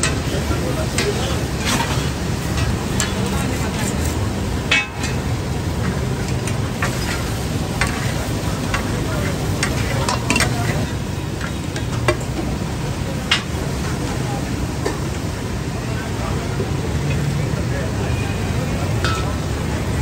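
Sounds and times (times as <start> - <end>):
stew sizzling on griddle: 0.0 - 15.5.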